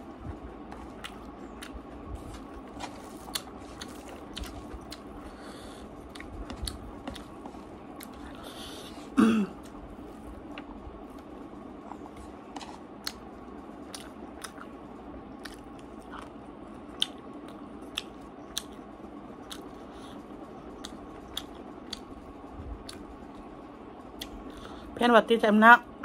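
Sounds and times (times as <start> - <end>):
faint background hum: 0.0 - 26.0
person chewing with mouth smacks: 0.7 - 5.5, 6.1 - 9.8, 13.9 - 14.7, 15.4 - 18.8, 19.4 - 20.2, 20.8 - 22.1, 22.8 - 23.0, 24.2 - 24.6.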